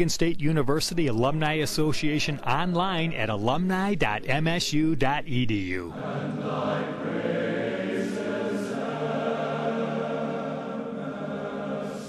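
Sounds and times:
choir singing sustained chords: 5.9 - 12.0.

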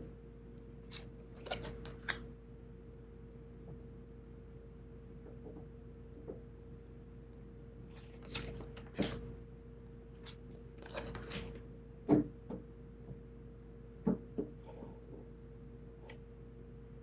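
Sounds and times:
low hum: 0.0 - 17.0
cards sliding and rubbing: 0.8 - 2.2, 7.9 - 9.3, 10.2 - 11.6.

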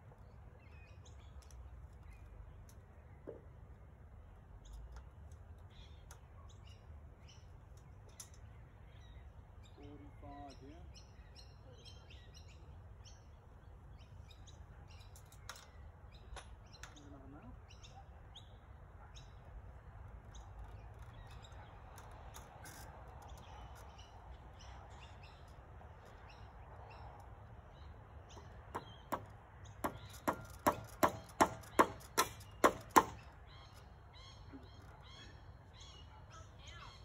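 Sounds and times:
hammer striking nail: 28.7 - 33.2.

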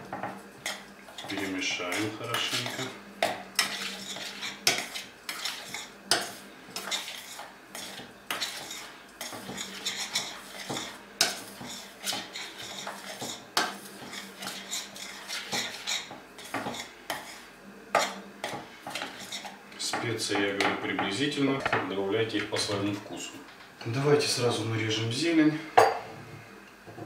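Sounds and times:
metal spoon scraping saucepan: 0.6 - 3.0, 3.6 - 17.4, 18.9 - 19.6.

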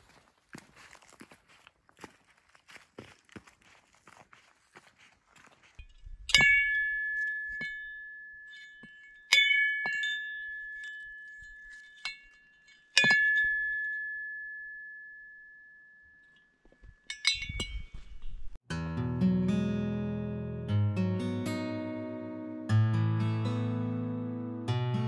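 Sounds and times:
metal bell ringing: 5.8 - 18.4.

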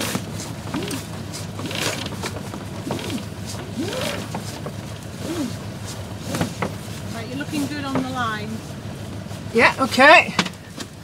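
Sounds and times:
ropes creaking through blocks: 0.0 - 5.6
boat engine running: 0.0 - 11.0.

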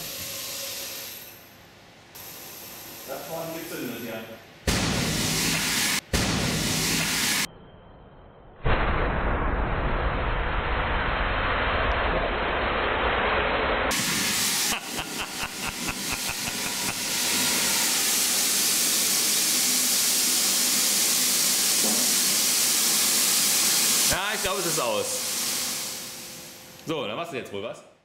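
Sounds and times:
compressed air hissing through hose: 13.9 - 26.4.

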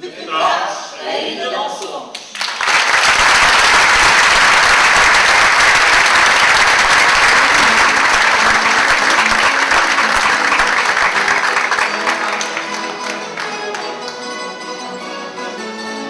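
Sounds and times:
audience applauding: 2.2 - 14.6
faint band instruments: 7.2 - 16.0.

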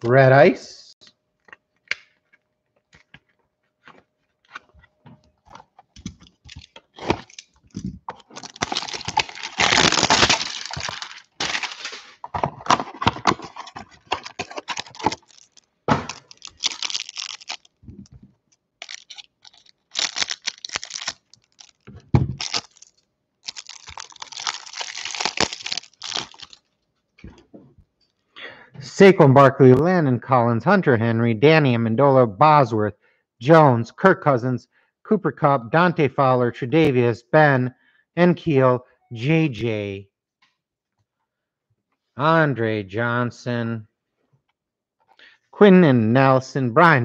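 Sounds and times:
plastic wrapper crinkling and tearing: 6.0 - 18.2, 18.8 - 26.7
scissors cutting plastic wrap: 8.3 - 12.2, 12.9 - 17.7, 18.8 - 21.8, 22.4 - 22.9, 23.5 - 26.6
cardboard box being opened: 8.4 - 15.5.

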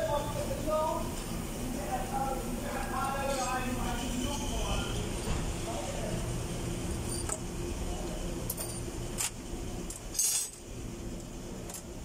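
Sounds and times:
low steady hum: 0.0 - 12.0
metal parts clattering: 8.5 - 10.6
metal tools clicking and clinking: 8.5 - 10.6.

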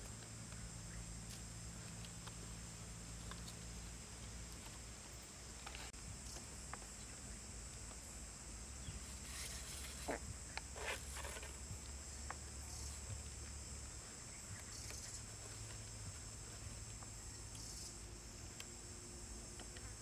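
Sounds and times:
insect chorus: 0.0 - 20.0
string rustling on stick: 8.8 - 17.9.

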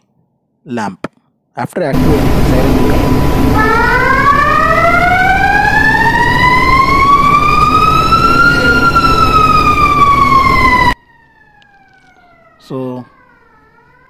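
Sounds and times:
machinery low rumble: 2.0 - 11.0
fire alarm siren wailing: 2.0 - 14.0.

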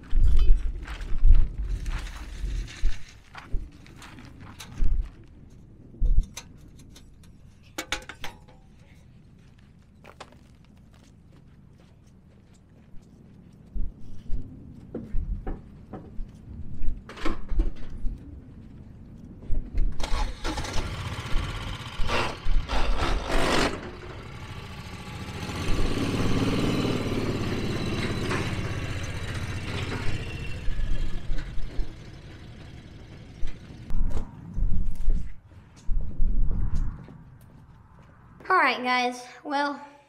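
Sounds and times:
footsteps: 0.0 - 6.8, 8.6 - 20.0
small engine starting and running: 20.0 - 33.8.

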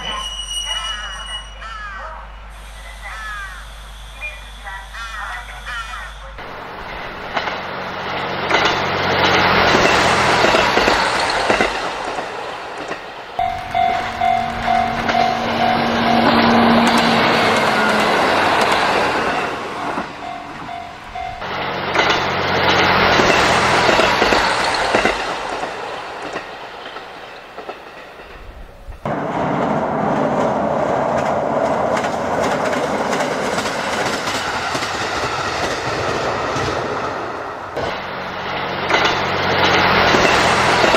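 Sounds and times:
train running along track: 0.0 - 40.9
steady pulsing tone: 13.4 - 18.0.

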